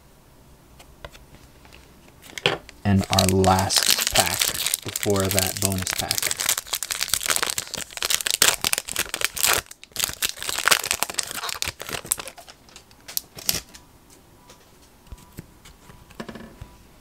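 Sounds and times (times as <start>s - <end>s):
foil wrapper tearing and crinkling: 2.9s - 13.7s.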